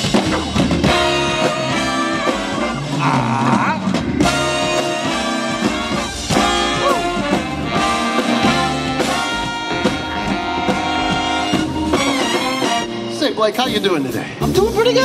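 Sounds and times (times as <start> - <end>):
swing band with horns: 0.0 - 15.0.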